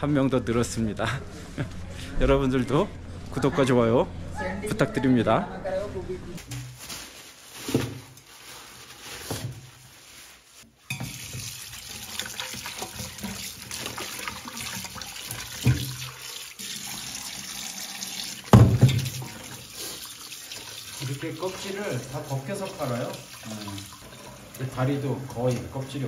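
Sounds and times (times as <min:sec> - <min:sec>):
water poured into metal sink: 0:10.9 - 0:26.0.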